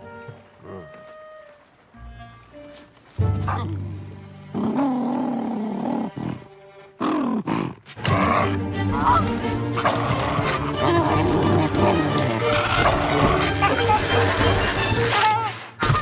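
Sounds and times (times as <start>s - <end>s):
creatures scuffling: 8.8s - 16.0s
cartoon animal growls and roars: 9.8s - 15.2s.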